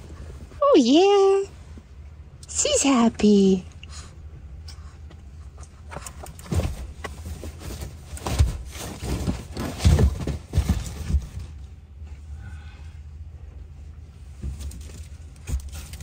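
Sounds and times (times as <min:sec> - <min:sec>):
low cabin rumble: 0:00.0 - 0:16.0
thumps and knocks in car: 0:06.0 - 0:11.6
shopping bags rustling: 0:07.2 - 0:11.6.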